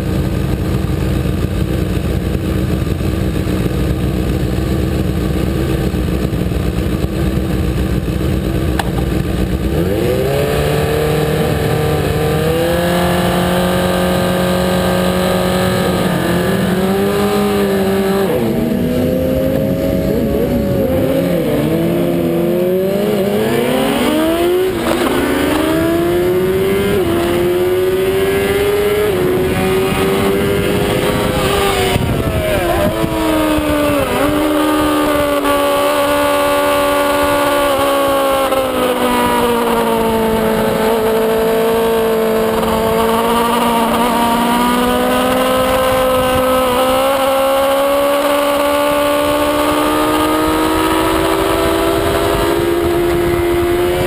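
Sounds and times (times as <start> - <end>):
sport bike engine revving: 0.0 - 54.0
wind rush: 23.8 - 36.5.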